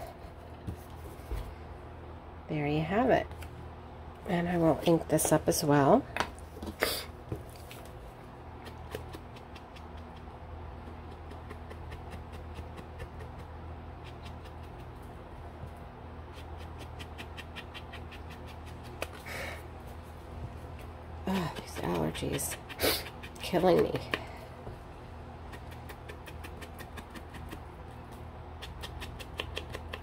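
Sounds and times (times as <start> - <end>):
steady low hum: 0.0 - 30.0.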